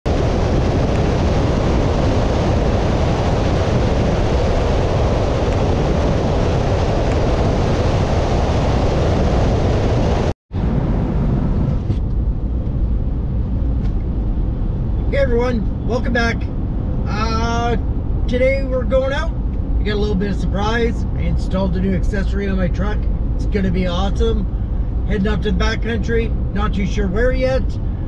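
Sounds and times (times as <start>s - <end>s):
wind rushing on microphone: 0.1s - 28.0s
engine rumble inside truck cab: 10.6s - 28.0s.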